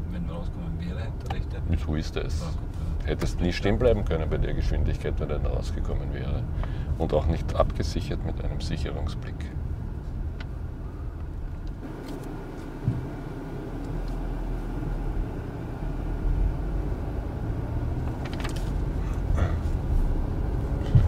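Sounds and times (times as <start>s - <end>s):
car engine and road rumble: 0.0s - 21.0s
single thump: 12.8s - 13.1s.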